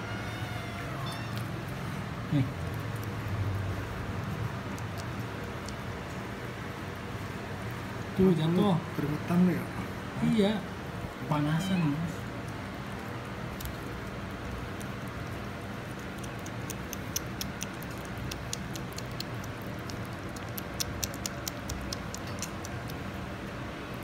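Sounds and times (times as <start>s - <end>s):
cat chewing food crunches: 2.3s - 6.3s, 13.4s - 23.1s.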